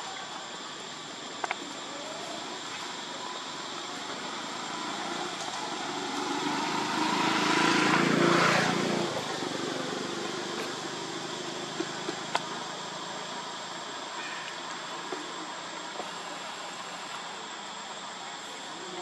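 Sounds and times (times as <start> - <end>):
outdoor background noise: 0.0 - 19.0
vehicle engine passing by: 4.2 - 11.3.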